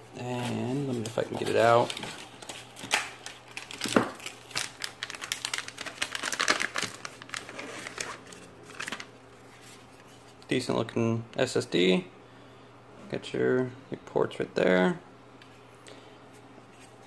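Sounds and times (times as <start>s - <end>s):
plastic bag crinkling: 0.5s - 10.0s.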